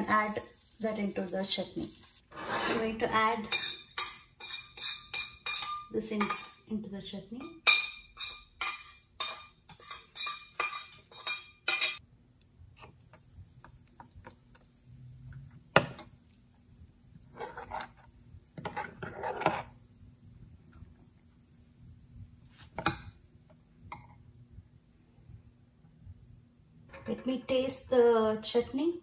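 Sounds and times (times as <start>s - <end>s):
metal spoon scraping steel pan: 2.3s - 6.7s, 7.4s - 12.0s, 17.3s - 19.8s
spoon stirring in bowl: 3.5s - 6.6s, 7.6s - 12.0s, 17.3s - 19.8s.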